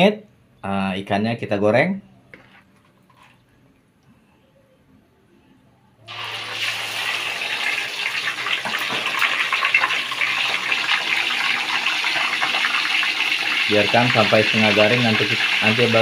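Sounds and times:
fish sizzling in hot oil: 0:06.1 - 0:16.0.

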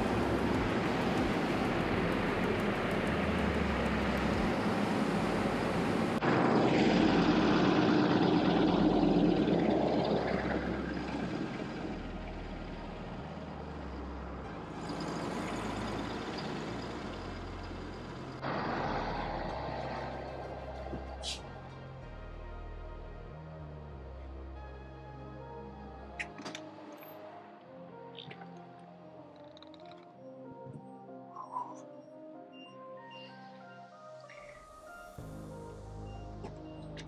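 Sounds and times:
diesel engine running: 0:00.0 - 0:22.3.

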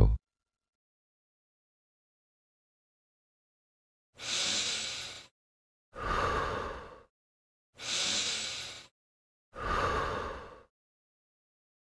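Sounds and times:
man breathing hard: 0:04.2 - 0:05.3, 0:06.0 - 0:07.1, 0:07.8 - 0:08.9, 0:09.6 - 0:10.7.

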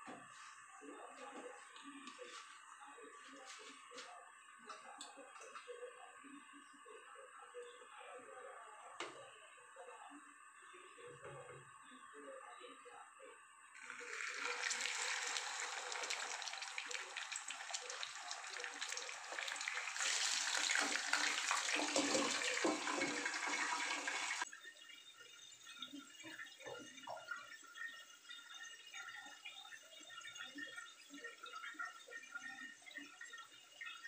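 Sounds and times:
food sizzling in hot oil: 0:13.8 - 0:24.5.

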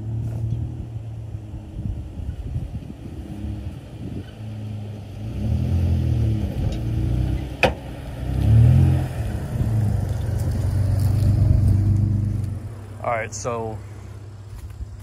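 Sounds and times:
pickup engine revving: 0:00.0 - 0:13.0.

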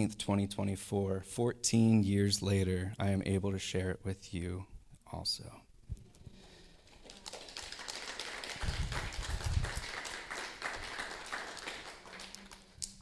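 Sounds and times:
crowd applauding: 0:06.8 - 0:13.0.

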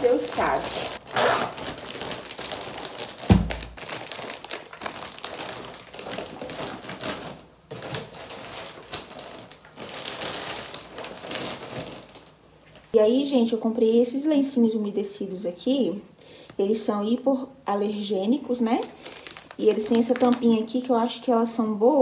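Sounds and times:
plastic packaging rustling: 0:00.0 - 0:13.0, 0:18.5 - 0:20.8.

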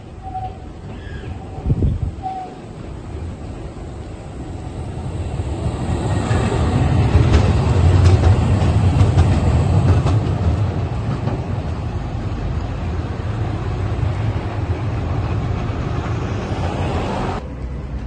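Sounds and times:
tram rumbling past: 0:00.0 - 0:18.0
wheels clicking over rail: 0:06.3 - 0:11.6.

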